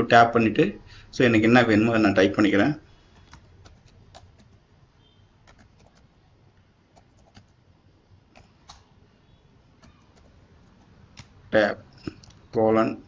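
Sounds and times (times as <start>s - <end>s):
low hiss: 0.0s - 13.0s
keyboard keystrokes: 5.4s - 6.1s, 7.0s - 7.5s.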